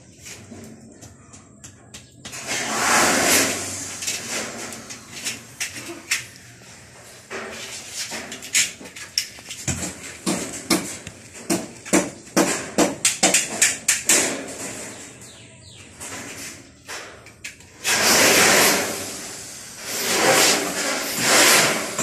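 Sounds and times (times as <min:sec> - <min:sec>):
hand tool knocking and scraping: 0:07.3 - 0:14.9.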